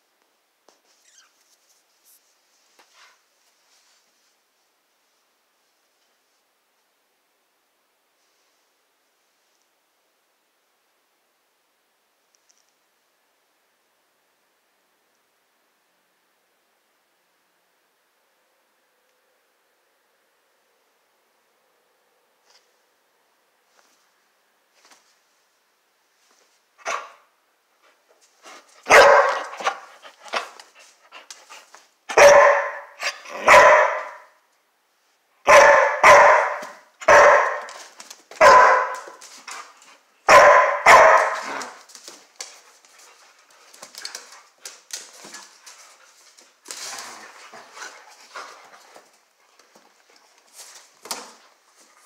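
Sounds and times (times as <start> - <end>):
dog barking: 26.8 - 27.3, 28.8 - 29.9, 32.1 - 34.4, 35.4 - 37.8, 38.4 - 39.2, 40.3 - 41.8
dogs scuffling and claw clicks: 28.2 - 31.9, 36.6 - 40.0, 40.8 - 52.0.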